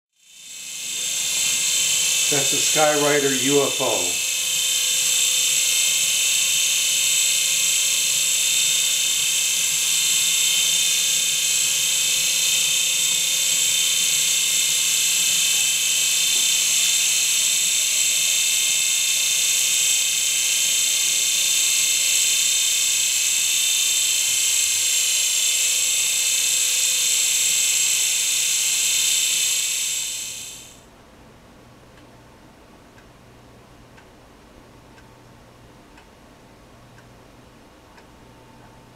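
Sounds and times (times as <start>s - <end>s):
toy helicopter whine: 0.2s - 30.8s.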